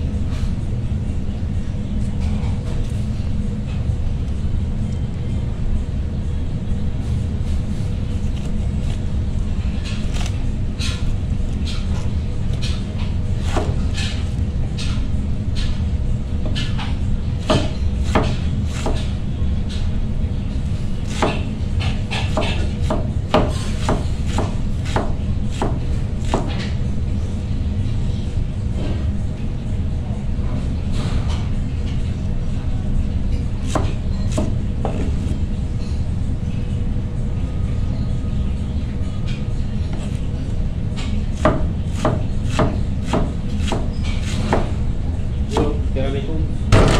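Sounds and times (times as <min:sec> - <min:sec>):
knife slicing cabbage: 0:07.5 - 0:09.1, 0:09.8 - 0:12.7, 0:41.4 - 0:44.7.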